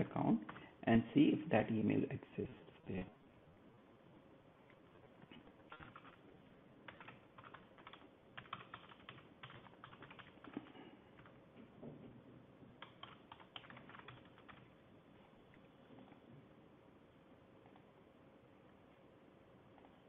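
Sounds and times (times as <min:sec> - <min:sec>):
computer keyboard typing: 0:05.3 - 0:06.2, 0:06.8 - 0:11.4, 0:12.8 - 0:14.7.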